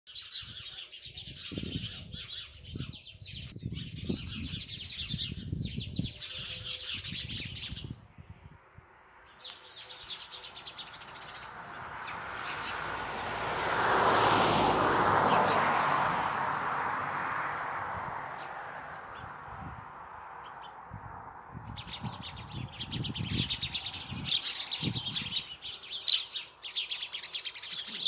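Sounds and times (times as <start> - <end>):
sparrows chirping: 0.1 - 8.0, 9.2 - 13.0, 18.4 - 19.6, 20.2 - 20.9, 21.5 - 28.0.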